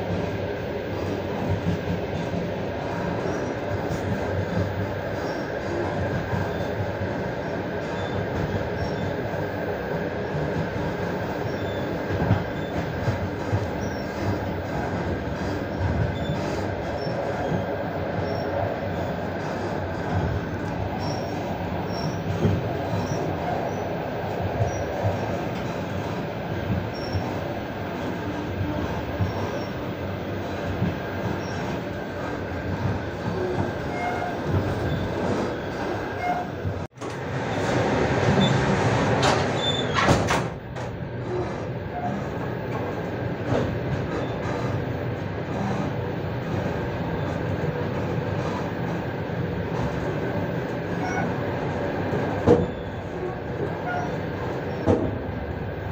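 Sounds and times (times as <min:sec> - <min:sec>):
freight train passing: 0:00.0 - 0:39.7
train wheels rumbling on rail: 0:00.0 - 0:55.9.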